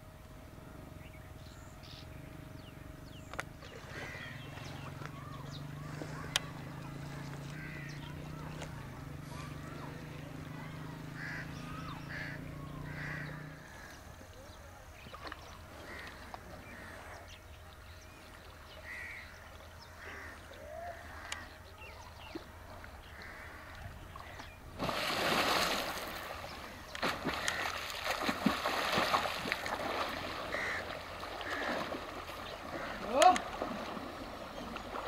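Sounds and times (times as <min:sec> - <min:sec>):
birds chirping: 0:00.5 - 0:35.0
water splashing and sloshing: 0:03.3 - 0:17.2, 0:18.2 - 0:35.0.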